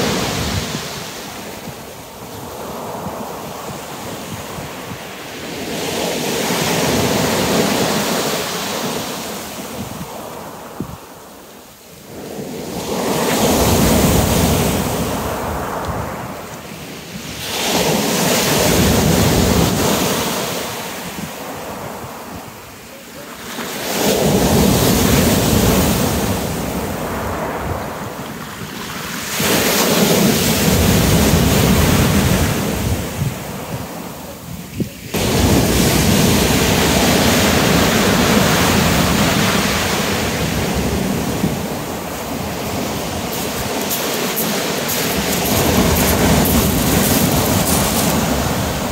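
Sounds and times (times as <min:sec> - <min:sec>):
waves breaking on shingle: 0:42.7 - 0:48.9.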